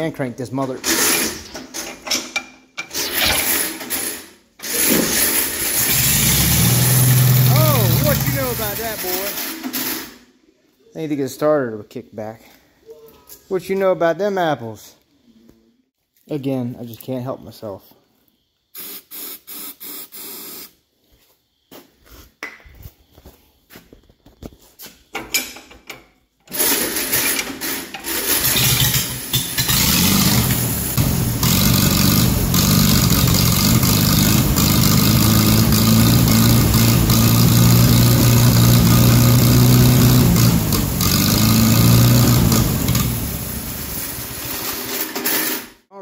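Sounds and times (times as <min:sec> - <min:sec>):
tractor engine starting and running: 0:00.0 - 0:10.1, 0:26.4 - 0:45.6.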